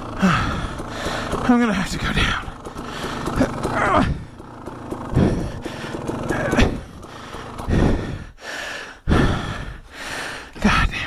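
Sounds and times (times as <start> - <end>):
person grunting: 0.0 - 1.0, 3.4 - 4.3
person breathing heavily: 0.0 - 1.4, 2.6 - 11.0
dirt bike engine at low revs: 0.0 - 8.4.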